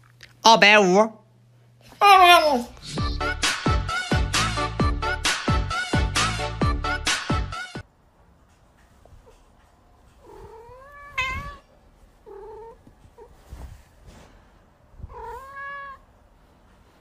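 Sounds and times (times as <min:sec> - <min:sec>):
cat meowing: 0:10.2 - 0:13.4, 0:15.0 - 0:16.1.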